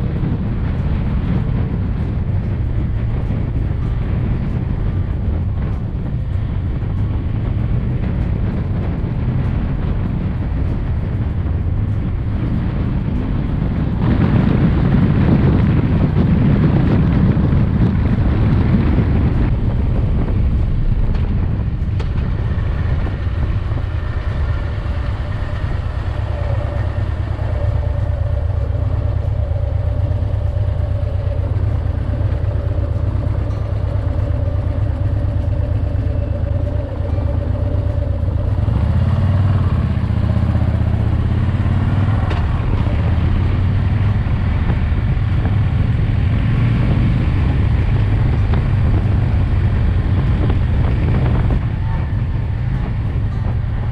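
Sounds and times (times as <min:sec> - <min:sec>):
motorcycle engine running: 0:00.0 - 0:53.9
steady whine: 0:00.0 - 0:53.9
wind noise on microphone: 0:00.0 - 0:53.9.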